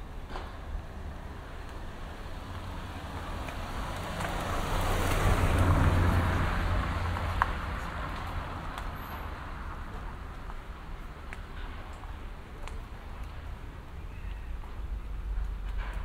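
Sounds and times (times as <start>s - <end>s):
vehicle driving past: 2.6s - 9.3s.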